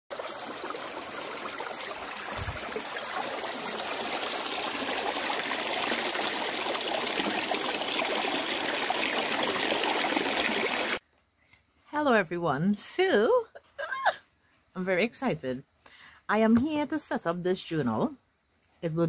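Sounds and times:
stream trickling over rocks: 0:00.1 - 0:11.0.

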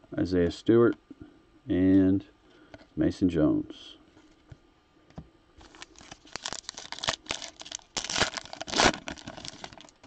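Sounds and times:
foil pack tearing and crinkling: 0:05.6 - 0:10.0.

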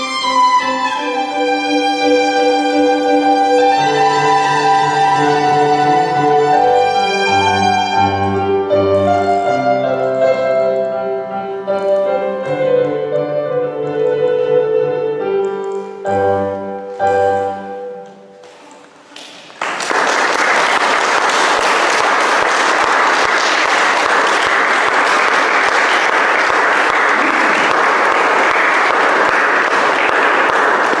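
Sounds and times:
violin and keyboard duet: 0:00.0 - 0:19.1
audience applause: 0:19.1 - 0:31.0.

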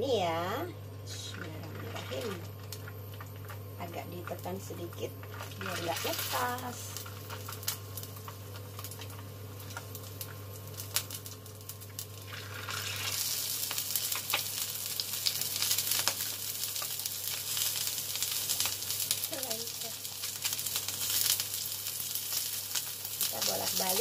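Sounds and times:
food frying in hot oil: 0:00.0 - 0:24.0.

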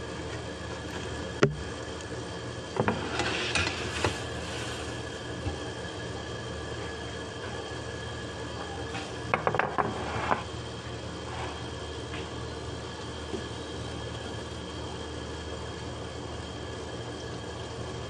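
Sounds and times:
steady electrical hum: 0:00.0 - 0:18.0
kitchenware knocking and clinking: 0:09.3 - 0:10.0.

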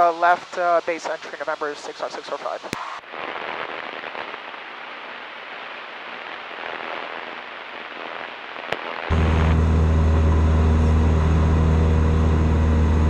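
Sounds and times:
headset intercom hiss: 0:00.0 - 0:04.7.

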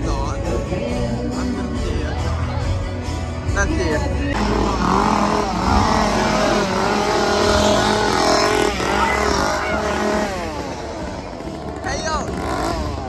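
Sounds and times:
chainsaw engine revving: 0:04.3 - 0:13.0.

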